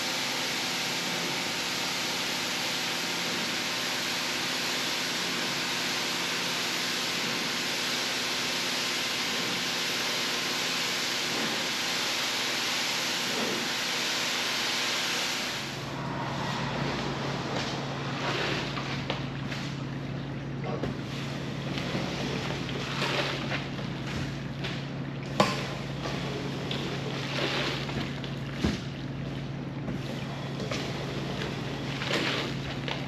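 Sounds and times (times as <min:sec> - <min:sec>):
rug-washing machine hissing: 0:00.0 - 0:20.2, 0:20.9 - 0:24.6, 0:25.4 - 0:28.2
low steady hum: 0:15.5 - 0:33.0.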